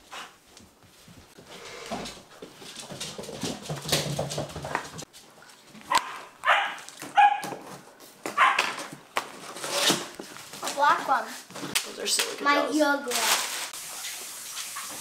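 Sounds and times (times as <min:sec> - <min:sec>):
dog barking and yipping: 0:05.9 - 0:07.6, 0:08.3 - 0:08.8.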